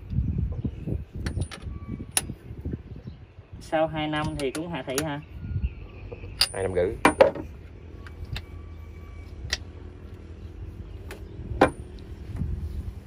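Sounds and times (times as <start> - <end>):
metallic clicks and knocks: 1.2 - 2.3.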